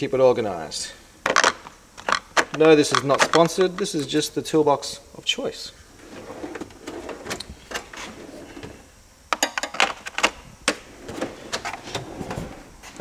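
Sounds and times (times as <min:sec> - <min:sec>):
drawers sliding open and shut: 0:06.0 - 0:08.9, 0:09.7 - 0:13.0.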